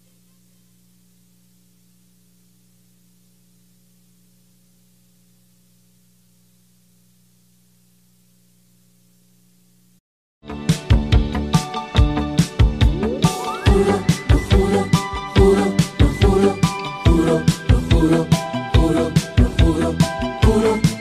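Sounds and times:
faint low hum and hiss: 0.0 - 10.0.

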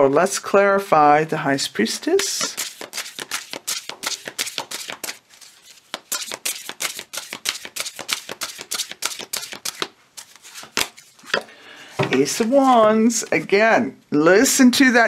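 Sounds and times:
cards being shuffled: 2.2 - 11.4.

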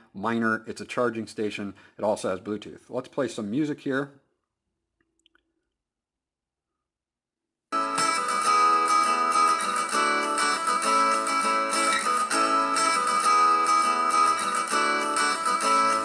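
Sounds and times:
acoustic guitar music: 7.8 - 16.0.

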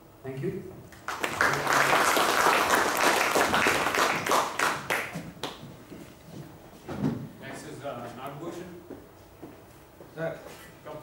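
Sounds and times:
audience applauding: 1.0 - 5.6.

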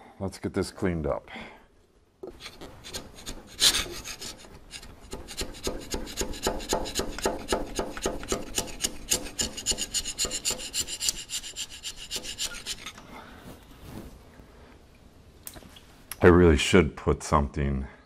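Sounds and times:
chisel scraping metal: 2.2 - 13.0.

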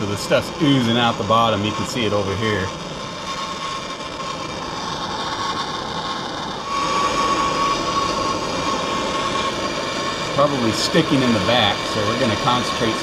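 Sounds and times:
faint steady whistle: 0.0 - 13.0
gas torch flame hissing: 0.0 - 13.0.

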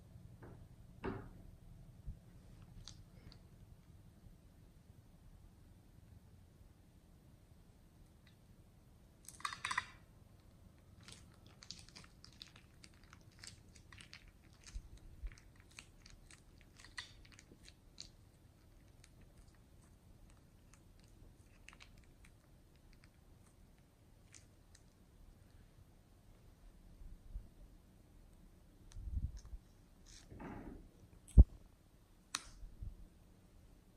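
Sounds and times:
plastic piping bag crinkling: 9.2 - 25.0.

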